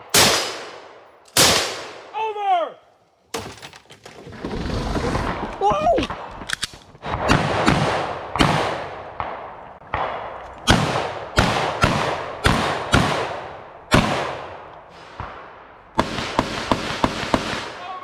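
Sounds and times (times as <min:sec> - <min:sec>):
pistol shots with echo: 0:00.0 - 0:02.1, 0:07.1 - 0:17.8.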